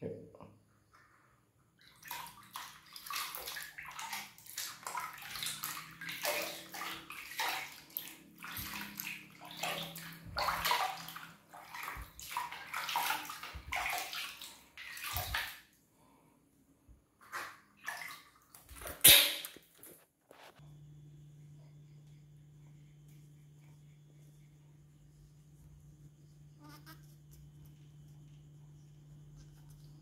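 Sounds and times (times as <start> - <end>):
water splashing in plastic bucket: 1.8 - 15.7, 17.2 - 20.0.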